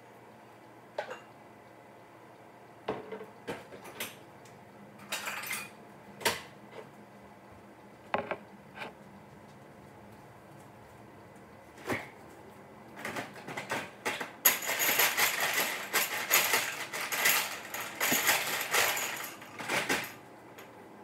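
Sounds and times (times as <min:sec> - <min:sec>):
low room hum: 0:00.0 - 0:21.0
objects knocking and clattering: 0:08.1 - 0:08.4, 0:13.0 - 0:20.2.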